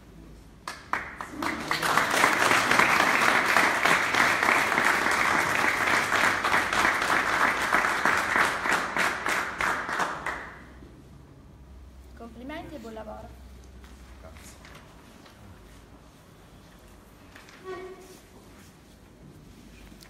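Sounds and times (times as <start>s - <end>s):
audience applauding: 0.6s - 10.7s.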